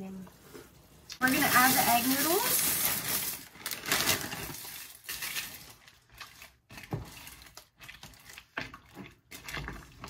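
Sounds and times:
dry noodles rustling: 0:01.2 - 0:08.4.

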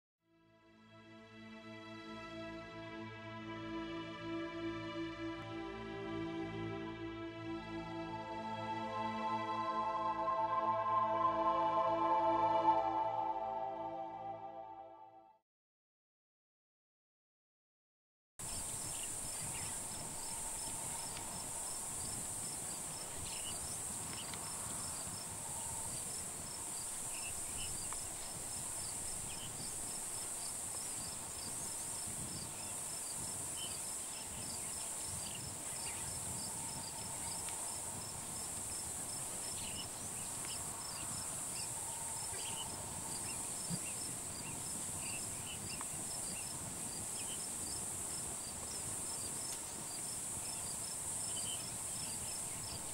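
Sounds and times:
insects chorus: 0:18.4 - 0:52.9.

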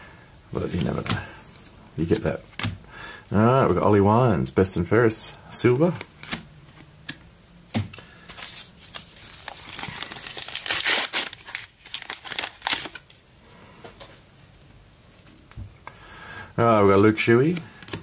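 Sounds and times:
foil wrapper tearing and crinkling: 0:08.9 - 0:13.0.

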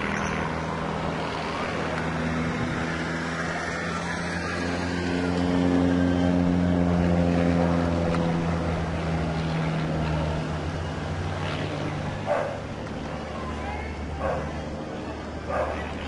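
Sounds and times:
propeller aircraft engine: 0:00.0 - 0:16.0.

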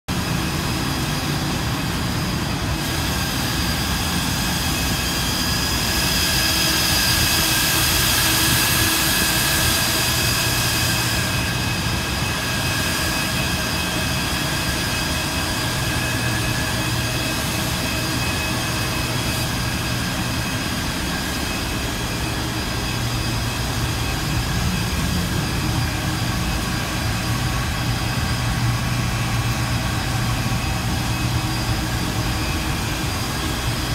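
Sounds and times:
server cooling fans whirring: 0:00.1 - 0:33.9.

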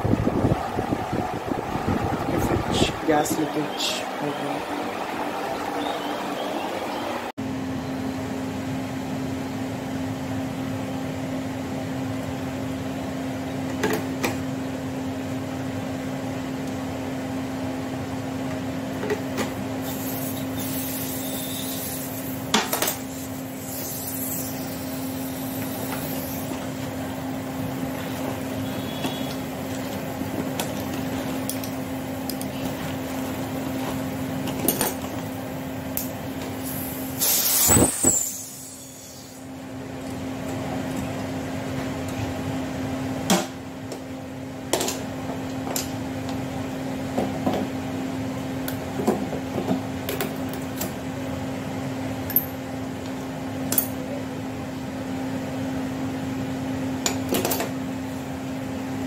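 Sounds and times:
machine hum: 0:00.0 - 0:10.8.

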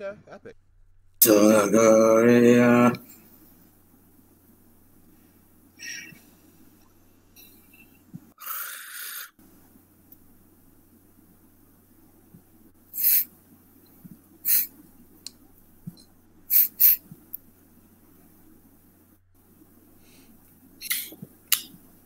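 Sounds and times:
steady low hum: 0:00.0 - 0:22.0
short hissing bursts: 0:07.4 - 0:09.4, 0:12.9 - 0:13.4, 0:14.4 - 0:14.8, 0:16.5 - 0:17.2.

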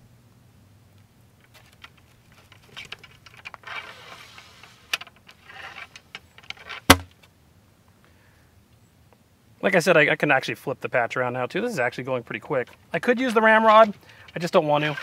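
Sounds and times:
cleaning rod scraping in rifle bore: 0:13.8 - 0:15.0.

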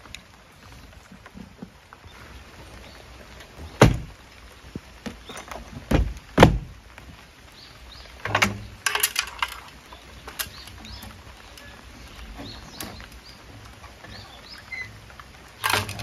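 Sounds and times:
heavy door thuds: 0:03.7 - 0:04.2, 0:05.8 - 0:06.7
hardware clicks and rattles: 0:08.2 - 0:10.7, 0:15.6 - 0:16.0.

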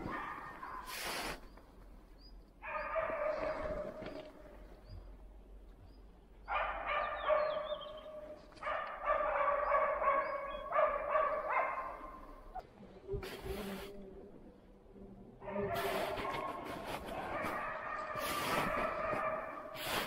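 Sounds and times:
dogs barking: 0:00.0 - 0:01.0, 0:02.6 - 0:04.2, 0:06.4 - 0:12.6, 0:15.4 - 0:20.0.

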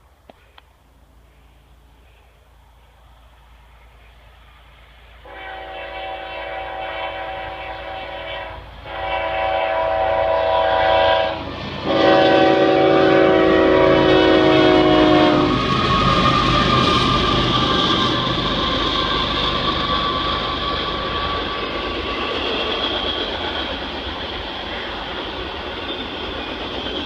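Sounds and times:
locomotive rumble: 0:00.2 - 0:27.0
locomotive horn blasts: 0:05.2 - 0:15.6.

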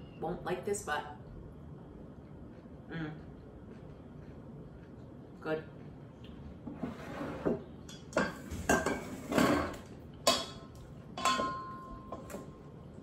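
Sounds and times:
wooden servers knocking on metal bowl: 0:08.1 - 0:12.5
metal bowl ringing: 0:10.3 - 0:12.3.

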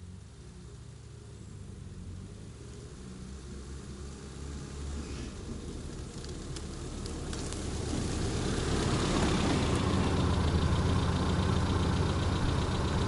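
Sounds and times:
car engine running at low speed: 0:00.0 - 0:13.0.

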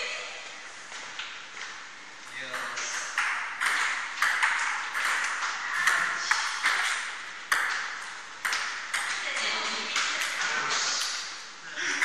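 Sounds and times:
ping pong ball clicking off paddles: 0:02.3 - 0:12.0
ball bouncing on table: 0:02.5 - 0:11.2.

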